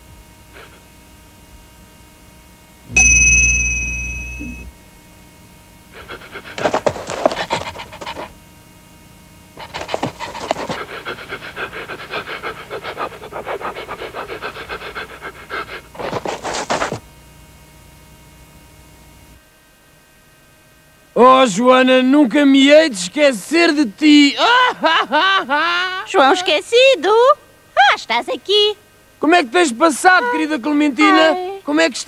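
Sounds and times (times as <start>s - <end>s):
cartoon ringing tone: 2.9s - 4.7s
dog panting rapidly: 6.0s - 8.4s, 9.6s - 17.0s.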